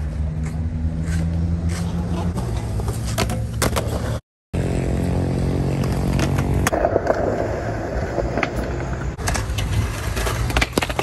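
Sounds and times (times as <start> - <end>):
skateboard wheels rolling on concrete: 0.0 - 11.0
skateboard scraping along rail: 5.6 - 11.0.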